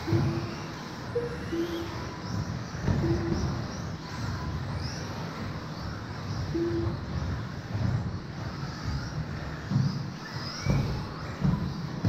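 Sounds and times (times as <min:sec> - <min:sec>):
short steady beeps: 0:00.0 - 0:02.1, 0:03.0 - 0:03.5, 0:06.5 - 0:07.0
toy car motors whining: 0:00.0 - 0:12.0
knocks from toy cars: 0:10.6 - 0:12.0.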